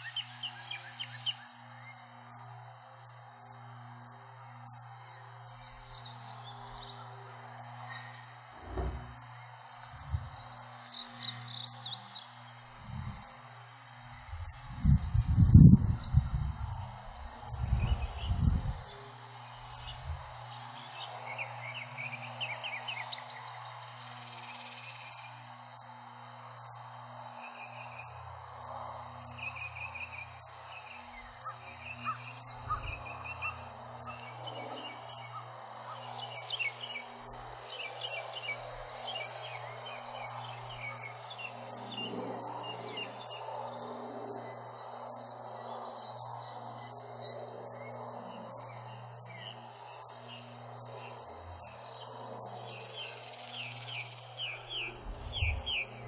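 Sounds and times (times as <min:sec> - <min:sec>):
insects chirping: 0:00.0 - 0:56.0
birds calling and trilling: 0:29.4 - 0:43.5, 0:52.7 - 0:56.0.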